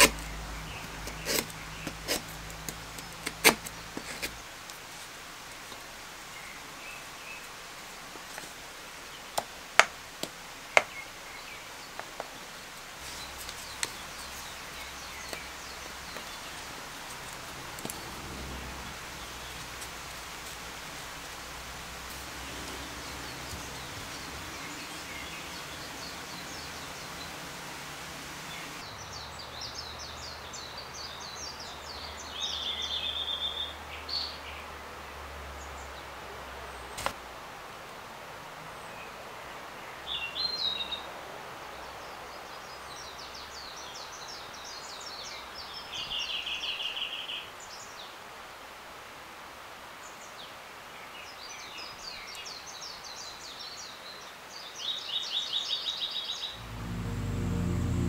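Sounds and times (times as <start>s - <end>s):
forest ambience: 0.0s - 34.7s, 54.7s - 58.0s.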